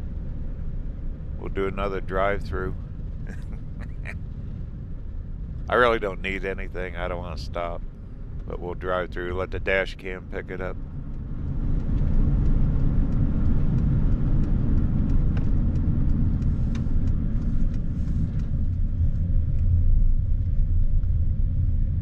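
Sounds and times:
vehicle road rumble: 0:00.0 - 0:22.0
light ticks: 0:11.1 - 0:19.8.

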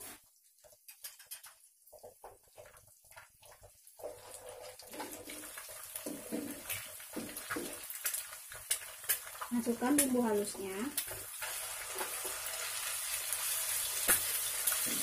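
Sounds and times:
egg sizzling in hot oil: 0:00.0 - 0:15.0
spatula scraping a pan: 0:03.6 - 0:07.7.

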